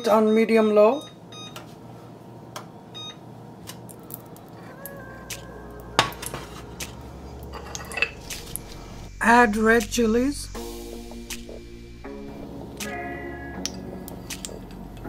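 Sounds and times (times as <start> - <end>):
melting fat crackling: 3.7 - 15.0
sharp click: 11.3 - 11.6, 13.6 - 14.6.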